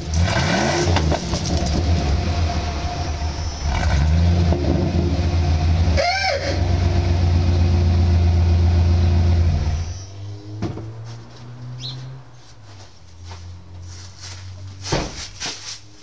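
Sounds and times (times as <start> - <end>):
engine exhaust rumble revving: 0.0 - 12.6.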